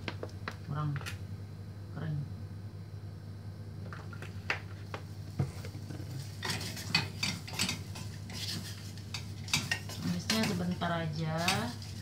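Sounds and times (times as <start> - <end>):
wooden spatula scraping saucepan: 6.2 - 12.0.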